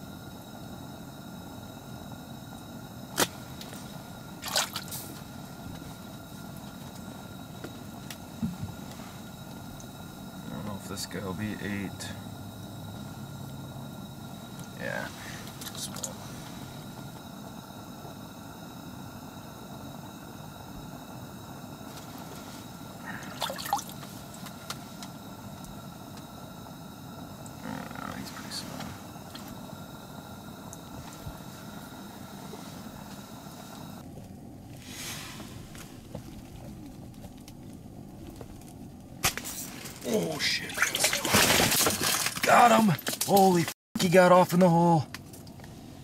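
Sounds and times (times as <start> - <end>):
steady low hiss: 0.0 - 41.4, 42.0 - 46.0
steady low hum: 0.0 - 46.0
water splashing and dripping: 23.2 - 24.1.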